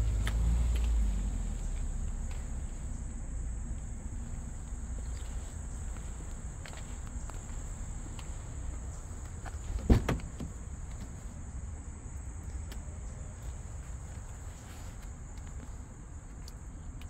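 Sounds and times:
crickets chirring: 0.0 - 17.0
low outdoor rumble: 0.0 - 17.0
loud thump: 9.7 - 10.6.

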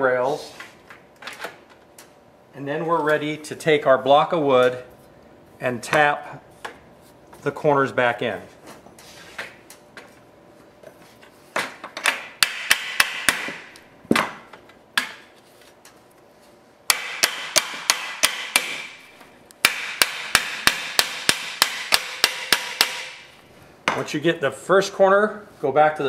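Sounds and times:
hammer tapping wooden block: 19.7 - 23.2.

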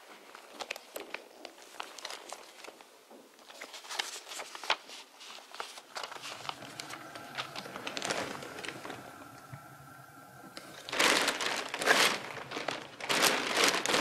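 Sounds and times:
paper rustling and crinkling: 0.0 - 8.2, 10.9 - 14.0
faint steady hum: 5.8 - 14.0.

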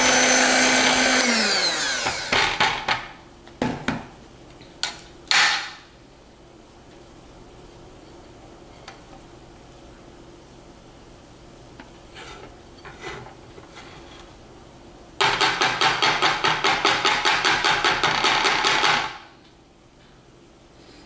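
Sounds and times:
soft scrapes in bowl: 12.0 - 14.4.

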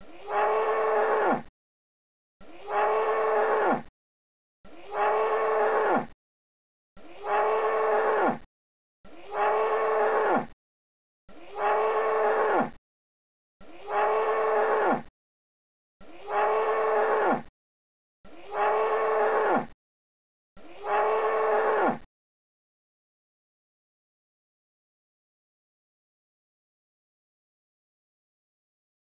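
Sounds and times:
grizzly bear call: 16.2 - 17.4, 18.4 - 19.6.

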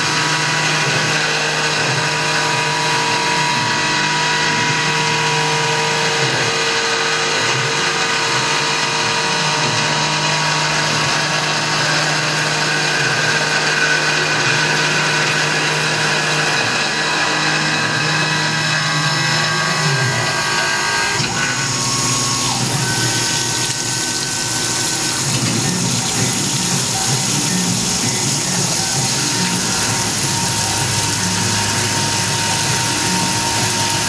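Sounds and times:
milling machine cutting whine: 0.0 - 34.0
coolant splashing: 19.4 - 34.0.

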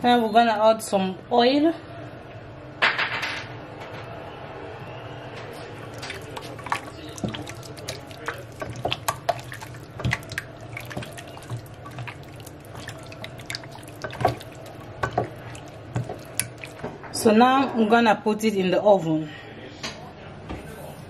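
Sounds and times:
wet squelches of meat in marinade: 5.6 - 16.9.

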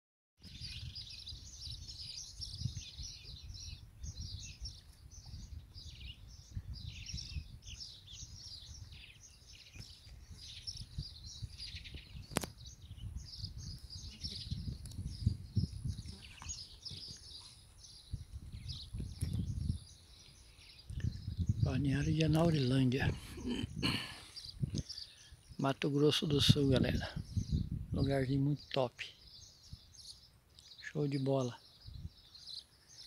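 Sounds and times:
small birds chirping: 0.4 - 33.0.

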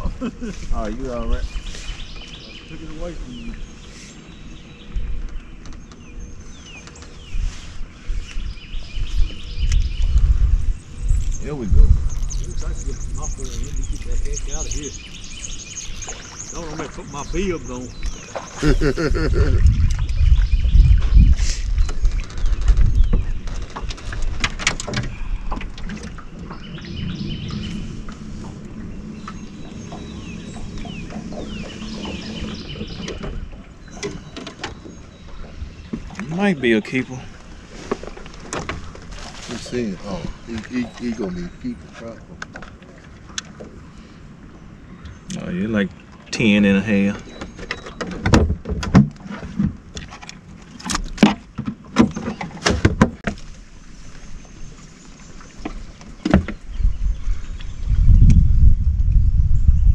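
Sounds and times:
birds calling: 0.0 - 52.8, 53.4 - 58.5
steady low rumble: 7.9 - 22.2.

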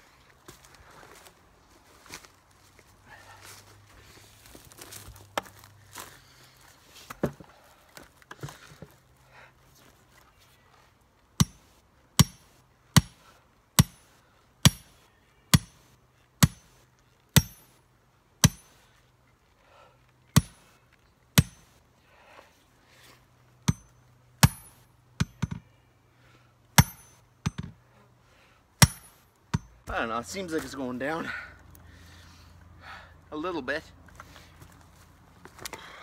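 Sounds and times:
hammer clanking on metal rod: 12.2 - 12.4, 18.4 - 18.7, 20.4 - 20.6, 23.7 - 25.6, 26.8 - 27.7.

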